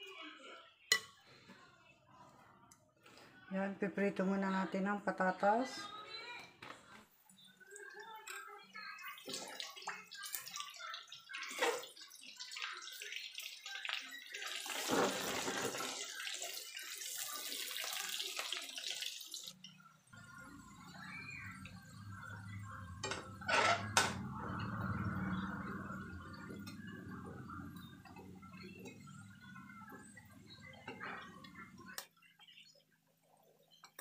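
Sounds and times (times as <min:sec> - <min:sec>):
potatoes sizzling in hot oil: 0:11.2 - 0:19.5
metal spatula scraping a pan: 0:23.0 - 0:24.8.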